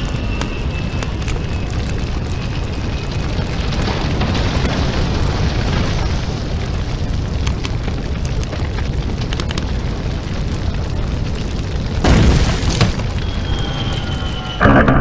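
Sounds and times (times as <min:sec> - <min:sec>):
fire roaring and crackling: 0:00.0 - 0:15.0
fire whoosh: 0:00.0 - 0:15.0
loud boom: 0:12.0 - 0:15.0.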